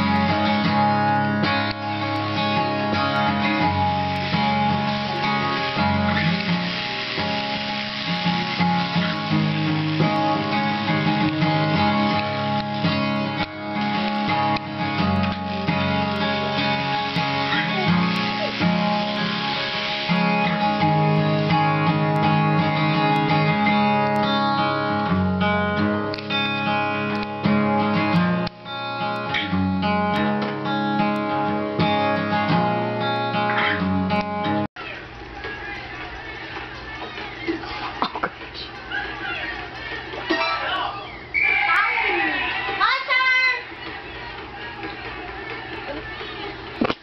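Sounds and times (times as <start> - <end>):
acoustic guitar strumming chords: 0.0 - 34.7.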